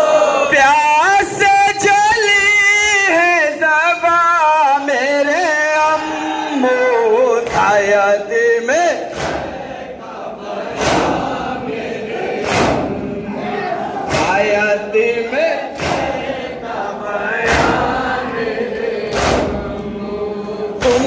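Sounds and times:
man singing a lament: 0:00.0 - 0:09.1, 0:13.2 - 0:18.8, 0:19.4 - 0:21.0
crowd chanting: 0:04.7 - 0:21.0
chest beating in unison: 0:09.0 - 0:20.1.

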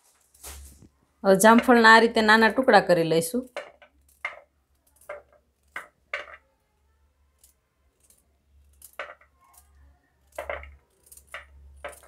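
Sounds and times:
knife cutting fruit on a plate: 0:07.4 - 0:12.0.

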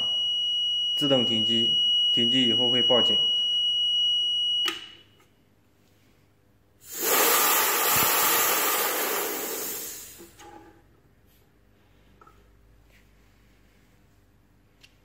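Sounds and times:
alarm buzzer high tone: 0:00.0 - 0:05.0
high-pressure air hissing: 0:06.8 - 0:10.3.

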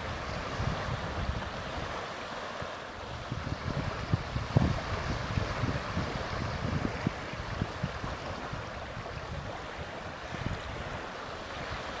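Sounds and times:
waves lapping on sandy shore: 0:00.0 - 0:12.0
wind rumbling on microphone: 0:00.0 - 0:12.0.

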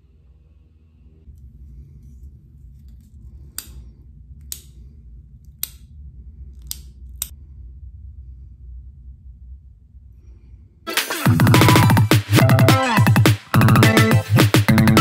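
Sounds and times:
low rumble of handling noise: 0:00.0 - 0:10.8.

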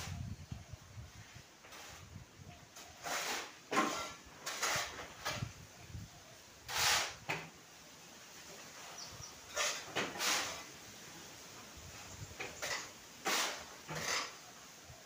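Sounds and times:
shovels scraping concrete floor: 0:01.6 - 0:02.2, 0:02.8 - 0:05.5, 0:06.7 - 0:07.5, 0:09.5 - 0:10.7, 0:12.4 - 0:14.4.

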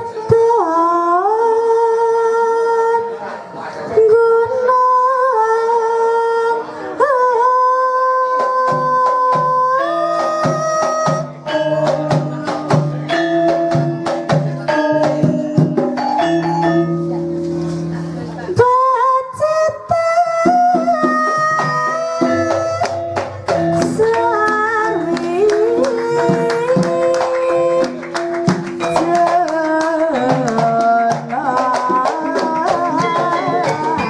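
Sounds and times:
woman singing: 0:00.0 - 0:03.1, 0:03.9 - 0:11.4, 0:18.6 - 0:34.0
hand drums: 0:08.4 - 0:18.7, 0:20.3 - 0:34.0
metallophones and gongs: 0:09.8 - 0:18.6, 0:21.6 - 0:29.4.

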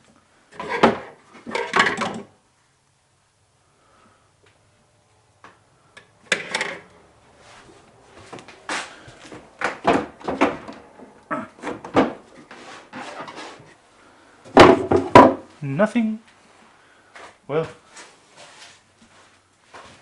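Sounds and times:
drawers sliding open and shut: 0:00.6 - 0:02.3, 0:11.5 - 0:13.8
cupboard doors knocking: 0:14.6 - 0:15.4.

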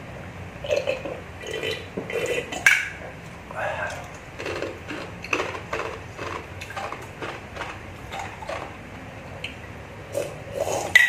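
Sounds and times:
eating mouth noises: 0:03.5 - 0:08.8.

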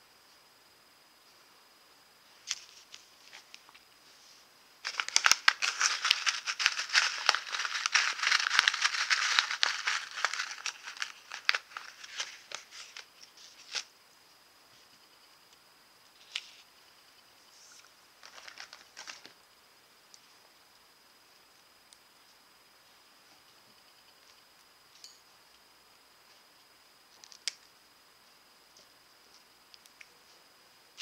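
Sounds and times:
crinkly wrapping being handled: 0:02.4 - 0:04.2, 0:04.8 - 0:13.9, 0:17.6 - 0:19.4.

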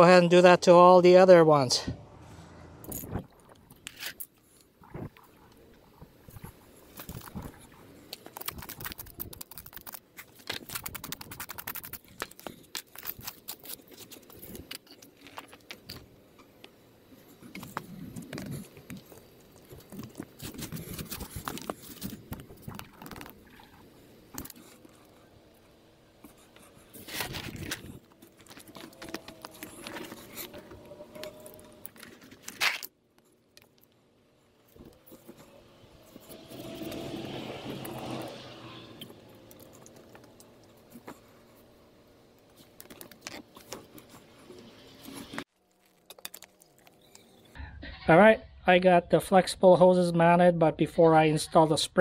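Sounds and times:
scraping and crunching of soil: 0:06.0 - 0:16.1, 0:17.2 - 0:33.9.

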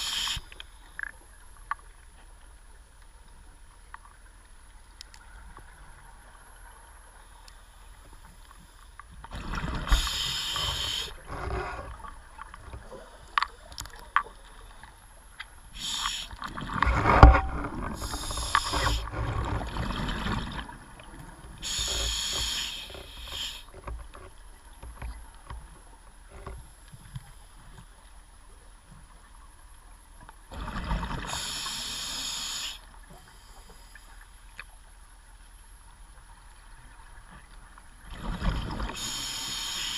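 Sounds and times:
diver breathing through a regulator: 0:00.0 - 0:00.6, 0:09.7 - 0:12.0, 0:15.7 - 0:16.6, 0:17.8 - 0:19.4, 0:21.6 - 0:23.8, 0:31.2 - 0:34.2, 0:38.8 - 0:39.9
camera knocks and rumbling: 0:16.8 - 0:18.0.

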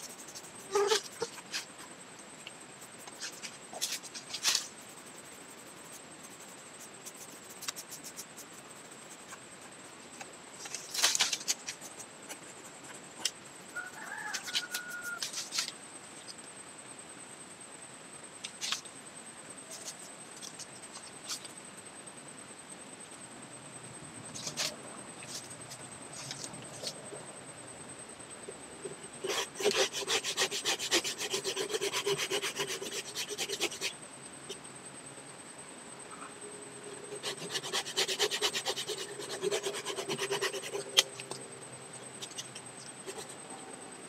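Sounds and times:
knife scraping bark: 0:00.0 - 0:01.9, 0:02.8 - 0:09.7, 0:10.6 - 0:15.8, 0:29.2 - 0:34.0, 0:37.1 - 0:41.4, 0:42.2 - 0:43.4.

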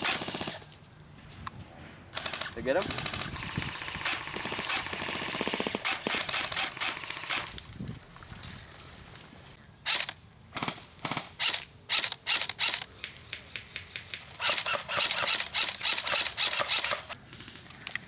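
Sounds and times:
airsoft rifle shots: 0:00.0 - 0:00.6, 0:02.2 - 0:07.6, 0:09.9 - 0:12.9, 0:14.0 - 0:17.2.

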